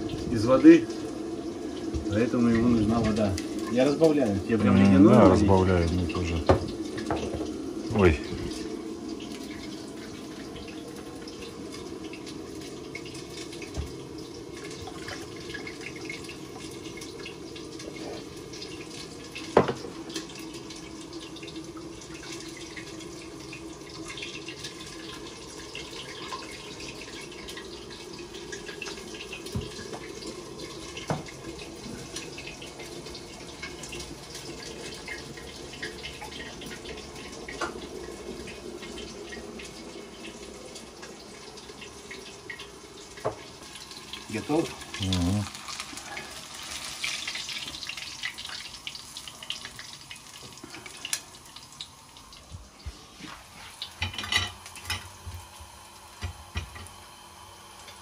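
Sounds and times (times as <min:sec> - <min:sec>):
water running from tap into sink: 0:00.0 - 0:58.0
dishes clinking: 0:54.0 - 0:55.1.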